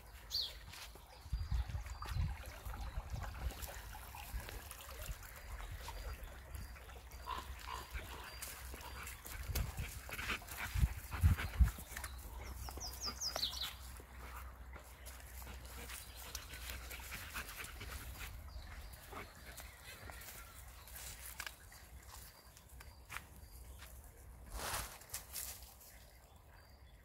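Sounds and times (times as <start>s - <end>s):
leaves rustling and crunching: 20.2s - 22.2s, 24.4s - 26.0s.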